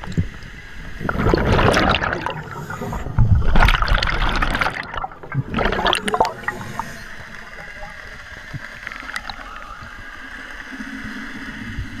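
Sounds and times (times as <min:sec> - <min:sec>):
air bubbles gurgling: 0:00.0 - 0:09.9
underwater hiss: 0:00.3 - 0:04.5, 0:05.6 - 0:12.0
low bubbling swell: 0:00.9 - 0:08.0.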